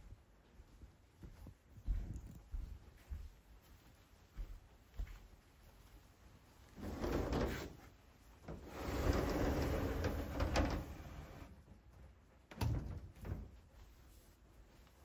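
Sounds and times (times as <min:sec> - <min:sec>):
wooden sliding door rumbling: 0:06.8 - 0:07.8, 0:08.5 - 0:11.5.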